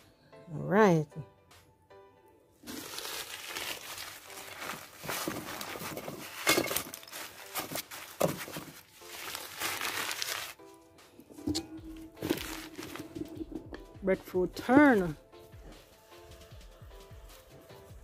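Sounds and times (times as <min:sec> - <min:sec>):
food rustling and scraping on grill: 0:02.6 - 0:13.7.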